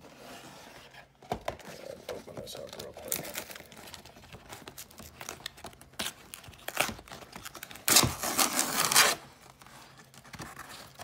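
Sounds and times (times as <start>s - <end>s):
packing tape crinkling: 2.4s - 11.0s
tape and cardboard ripping: 4.5s - 9.3s.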